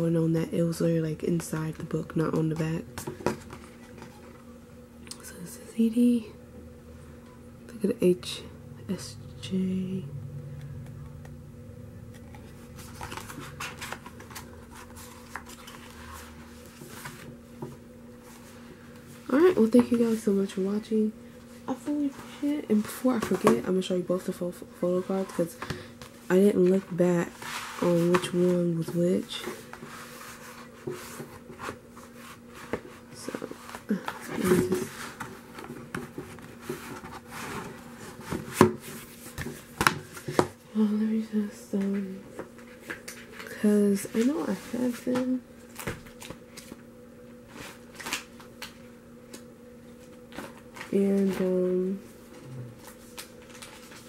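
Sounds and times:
rustling and scraping of handled items: 0:01.3 - 0:04.4, 0:12.1 - 0:20.8, 0:21.4 - 0:40.6, 0:41.7 - 0:46.8, 0:47.4 - 0:48.9, 0:49.8 - 0:54.0.

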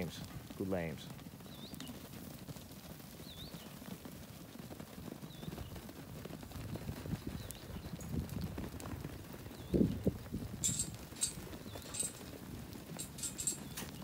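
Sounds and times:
lamb hooves running on dry dirt: 0:00.0 - 0:14.0.

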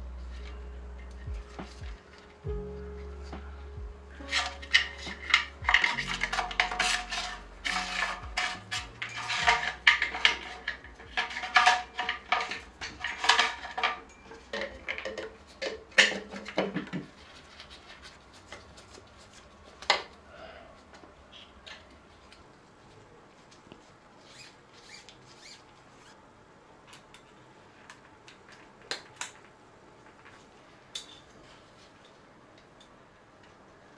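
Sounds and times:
small parts clicking and rattling: 0:04.2 - 0:18.6.

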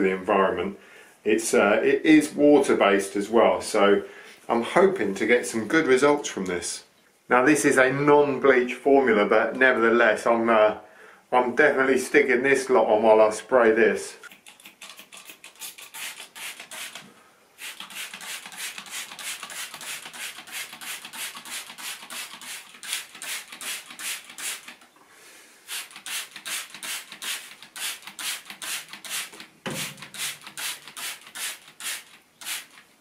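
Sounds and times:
spray bottle hissing squirts: 0:14.4 - 0:24.8, 0:25.7 - 0:32.9.

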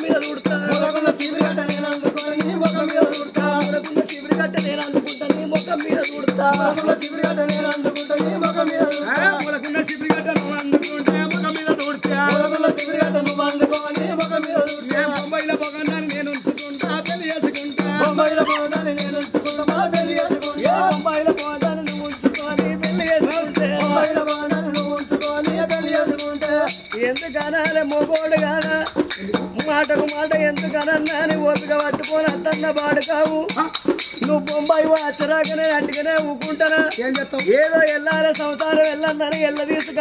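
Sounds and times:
fast rattling percussion: 0:00.0 - 0:40.0
steady drum beat: 0:00.0 - 0:40.0.

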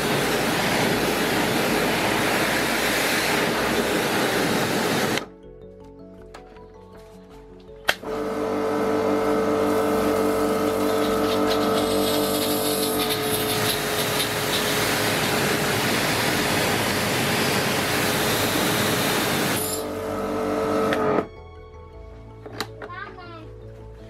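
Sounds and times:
pressure washer motor whining: 0:00.0 - 0:05.2, 0:08.0 - 0:21.3
water jet hissing on wood: 0:00.0 - 0:05.2, 0:09.5 - 0:19.9.

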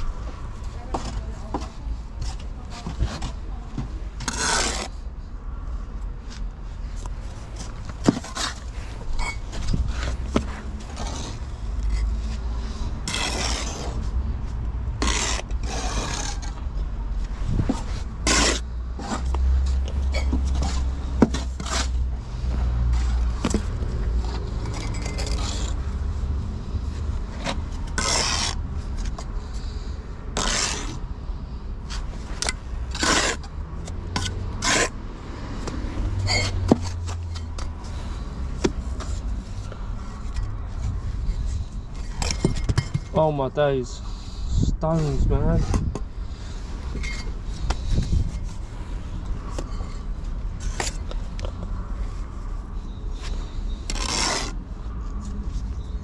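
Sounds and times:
trowel scraping mortar: 0:04.2 - 0:05.0, 0:08.0 - 0:14.2, 0:15.0 - 0:16.6, 0:17.5 - 0:19.4, 0:20.1 - 0:22.0, 0:24.3 - 0:25.8, 0:27.4 - 0:29.7, 0:30.3 - 0:31.0, 0:31.9 - 0:35.0, 0:36.2 - 0:37.9, 0:53.2 - 0:54.6.

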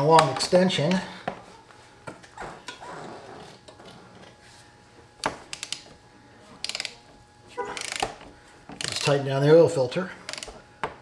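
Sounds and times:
ratcheting wrench clicking: 0:06.6 - 0:06.9.

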